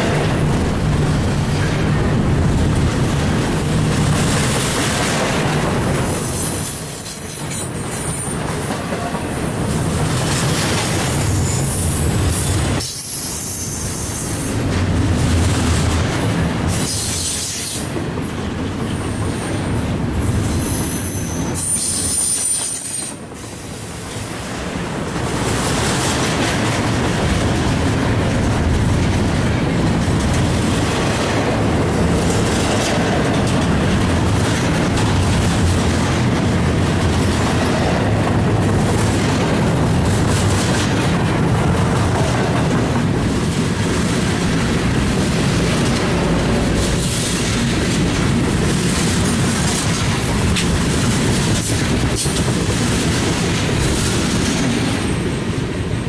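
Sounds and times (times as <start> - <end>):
train wheels clattering over rails: 0.0 - 56.0.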